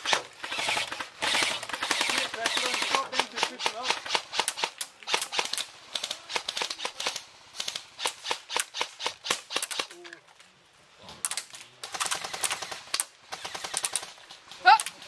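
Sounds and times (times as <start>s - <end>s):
airsoft rifle shots: 0.0s - 10.0s, 11.3s - 14.2s.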